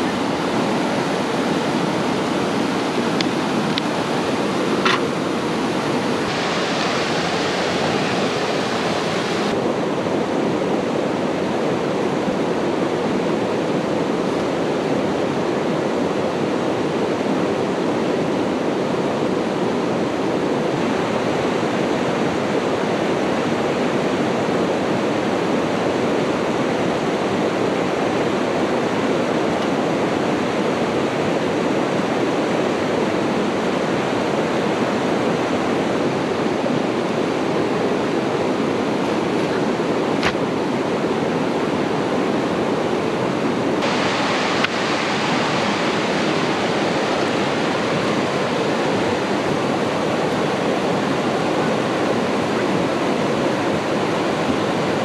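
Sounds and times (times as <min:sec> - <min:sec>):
water rushing: 0:00.0 - 0:55.0
bright hiss: 0:06.2 - 0:09.5.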